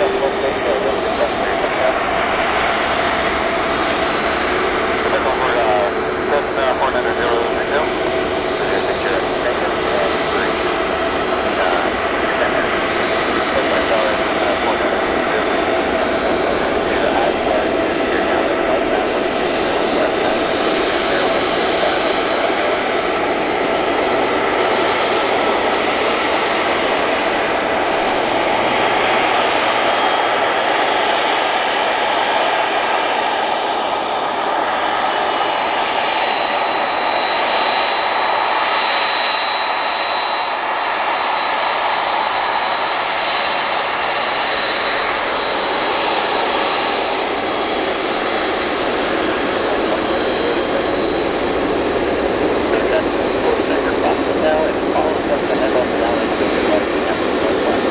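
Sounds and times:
high jet engine whine: 0.0s - 57.9s
jet engines roaring: 0.0s - 57.9s.

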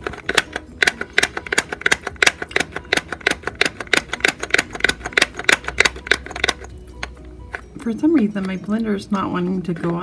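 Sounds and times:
plastic toy blender clicks: 0.0s - 7.1s.

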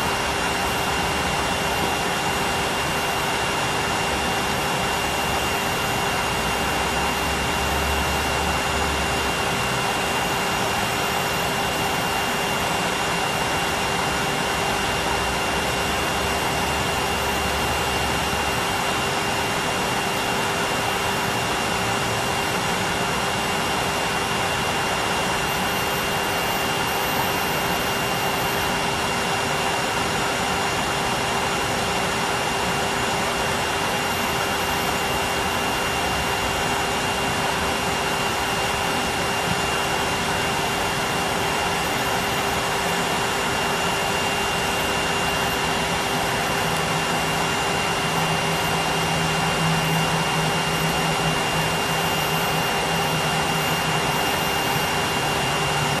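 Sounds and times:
vacuum cleaner whine: 0.0s - 56.0s.

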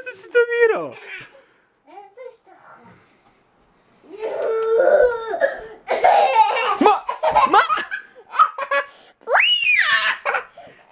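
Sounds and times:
toddler laughing: 4.2s - 8.9s.

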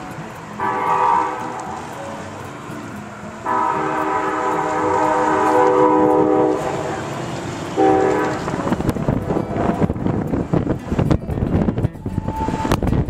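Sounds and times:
train horn chord blasts: 0.0s - 10.0s.

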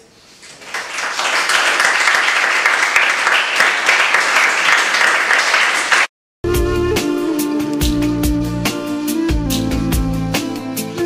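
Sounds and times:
audience applauding: 0.4s - 6.1s.

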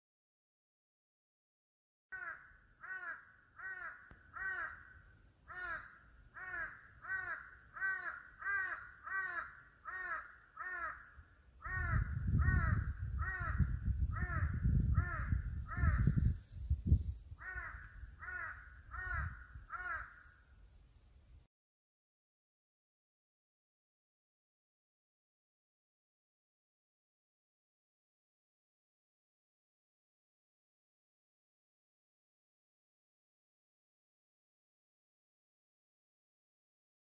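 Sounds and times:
crow cawing: 2.1s - 16.3s, 17.4s - 20.5s.

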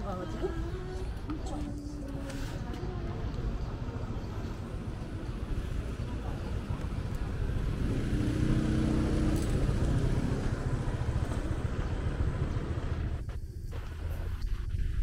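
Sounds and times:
city traffic rumble: 0.0s - 15.0s
vehicle engine passing close: 5.6s - 13.3s.

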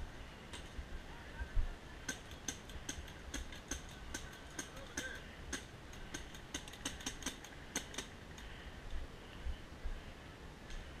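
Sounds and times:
distant paintball markers firing: 2.1s - 8.2s.

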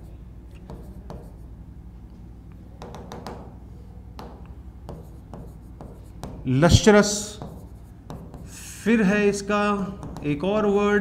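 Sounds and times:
low steady hum: 0.0s - 11.0s
stylus tapping on pen tablet: 0.6s - 1.3s, 2.8s - 3.5s, 4.2s - 6.5s, 7.4s - 8.5s, 10.0s - 10.4s.

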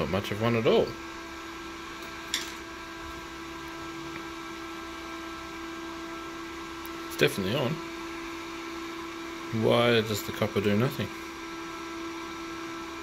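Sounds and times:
cooling fan blowing: 0.0s - 13.0s
constant hum: 1.9s - 5.0s.

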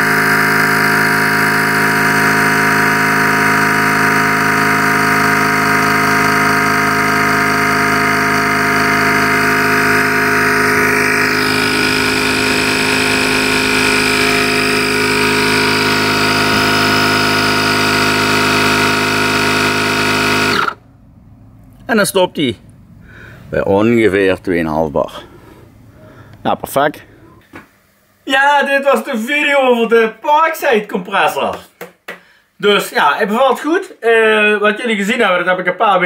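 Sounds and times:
tyre inflator running: 0.0s - 21.0s.

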